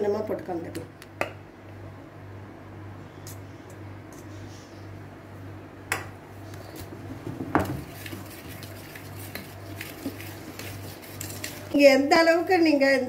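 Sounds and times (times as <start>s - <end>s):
whisk scraping metal bowl: 7.8s - 11.8s.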